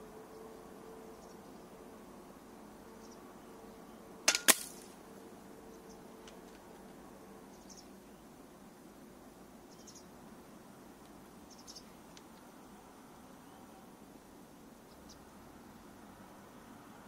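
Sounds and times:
faint clicks: 11.0s - 12.5s.

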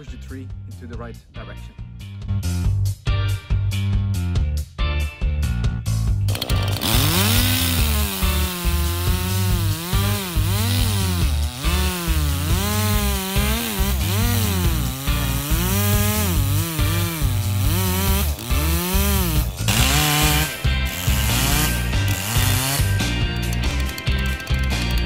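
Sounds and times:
chainsaw cutting wood: 6.3s - 25.0s.

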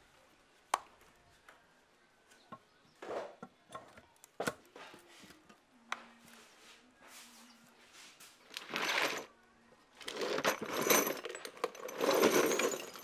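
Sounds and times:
metal parts knocking and clinking: 8.5s - 9.3s, 10.0s - 13.0s.

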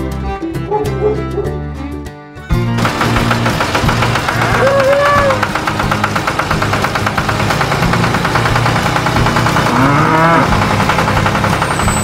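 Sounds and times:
background music with steady beat: 0.0s - 12.0s
cow mooing: 4.3s - 5.4s, 9.7s - 10.6s.

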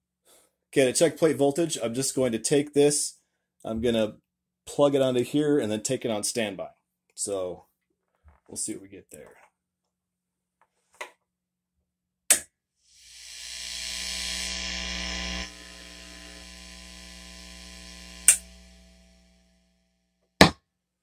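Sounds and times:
amplifier mains hum and hiss: 13.4s - 19.9s
amplifier switch clicks: 18.2s - 18.6s.

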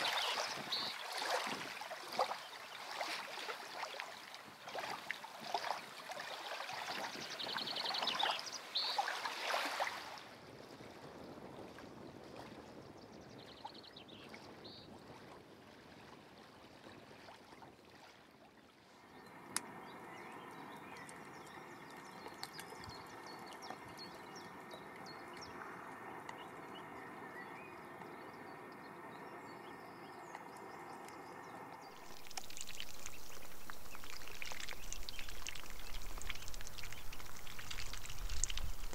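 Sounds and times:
soft water sounds: 0.0s - 38.9s
hiss of water: 31.9s - 38.9s.

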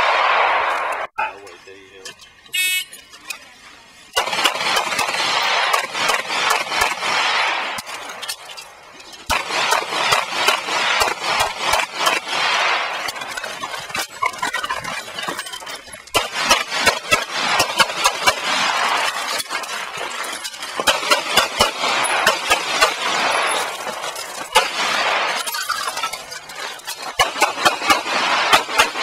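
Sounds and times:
rapid pistol shots with echo: 0.0s - 1.1s, 4.1s - 8.2s, 9.3s - 13.7s, 16.1s - 25.4s, 27.1s - 29.0s.

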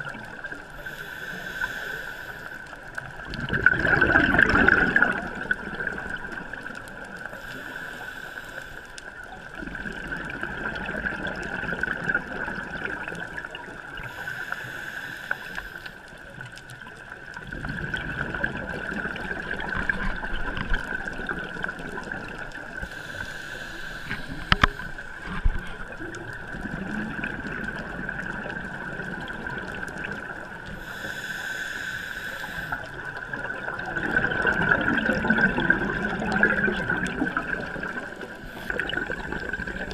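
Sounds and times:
steady hiss: 0.0s - 3.2s, 6.9s - 9.4s, 13.8s - 16.9s, 21.9s - 26.0s, 29.4s - 33.9s, 37.6s - 39.9s
underwater bubbles gurgling: 0.0s - 39.9s.

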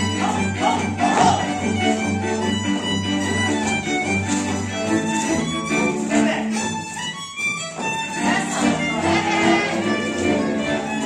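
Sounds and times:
folk dance music with fiddle: 0.0s - 11.0s.

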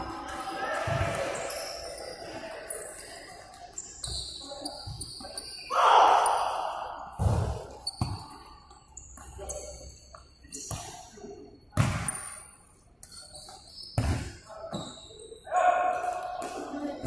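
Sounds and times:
shoes squeaking on hard floor: 1.2s - 5.7s, 7.6s - 11.1s, 12.0s - 15.4s
ball kicked and bouncing: 7.2s - 8.4s.

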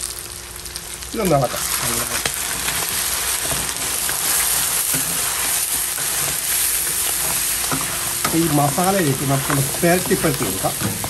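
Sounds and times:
meat sizzling in oil: 0.0s - 11.0s
wooden spatulas scraping pan: 2.5s - 11.0s.

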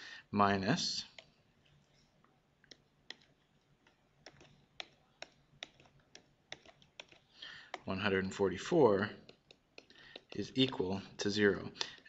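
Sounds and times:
faint computer mouse clicks: 2.6s - 7.9s, 9.2s - 10.4s.

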